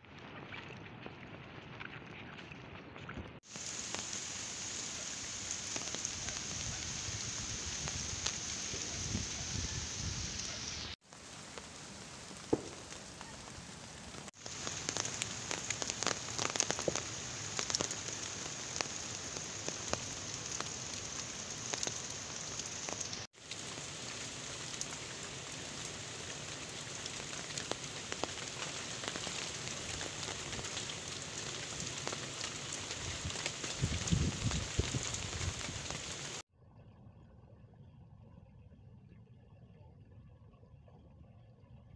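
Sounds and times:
heavy rain on leaves: 3.4 - 36.4
raindrops ticking: 3.5 - 9.6, 10.2 - 36.4.

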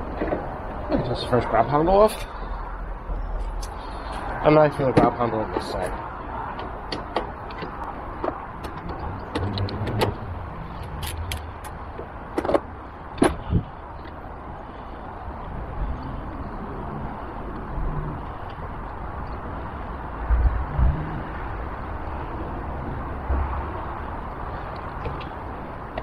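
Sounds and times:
steady low rumble: 7.8 - 26.0.

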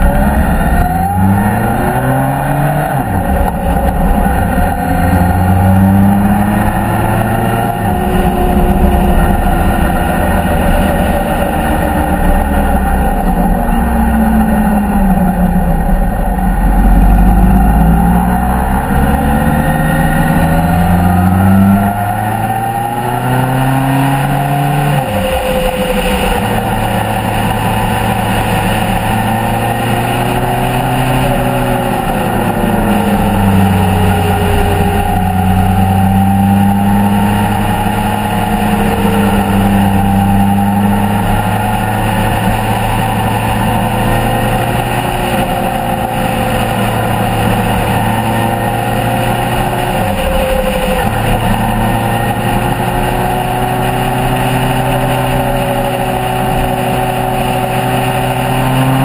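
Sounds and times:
wind rushing: 0.0 - 16.0
motorcycle engine revving: 0.0 - 59.0.

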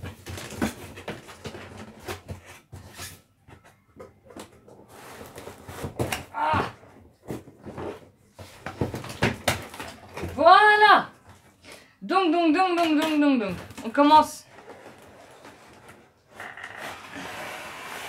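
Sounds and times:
cardboard box rustling and scraping: 4.8 - 6.2.

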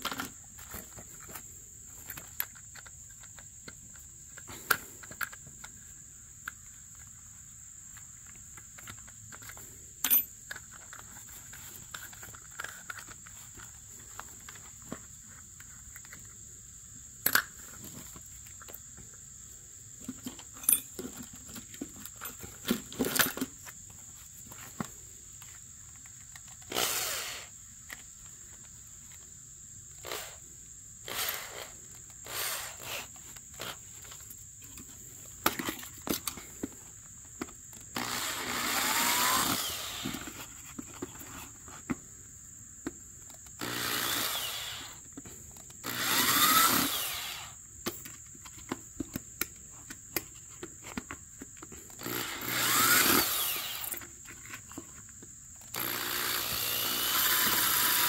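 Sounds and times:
handling knocks and clicks: 7.8 - 16.4, 20.0 - 26.7, 33.2 - 37.9, 47.8 - 52.0
handheld power tool running: 26.7 - 27.5, 30.0 - 30.4, 31.1 - 33.8, 37.9 - 40.4, 43.5 - 45.0, 45.8 - 47.6, 51.9 - 54.1, 55.7 - 58.0.

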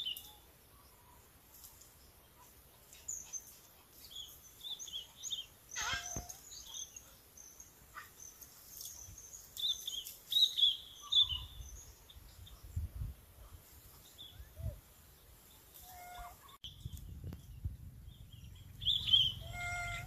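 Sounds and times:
small birds chirping: 0.0 - 20.0
low rumble: 16.7 - 20.0.

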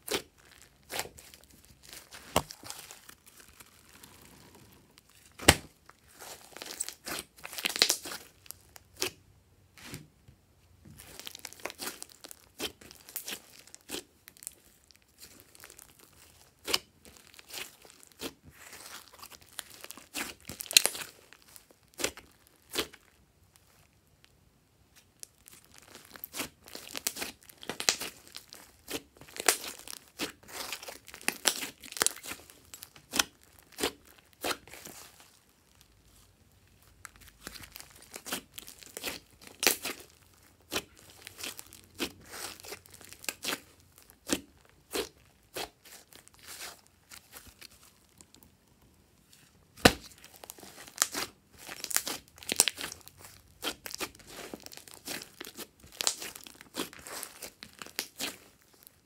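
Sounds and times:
slime crackling and popping: 0.0 - 9.2, 10.9 - 24.3, 24.9 - 59.0
sharp slime pop: 5.4 - 5.7, 49.8 - 50.3.

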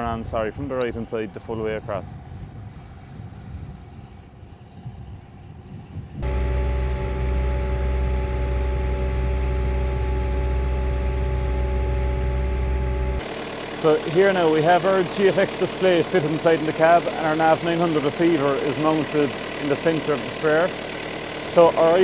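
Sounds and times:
faint low rumble: 6.2 - 13.2
engine droning from inside cab: 6.2 - 22.0.

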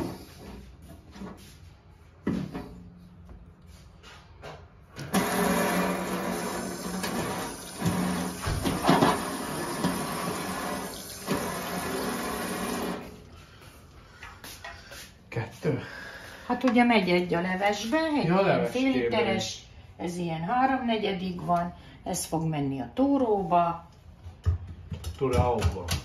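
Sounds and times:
water running from tap: 5.1 - 13.2.

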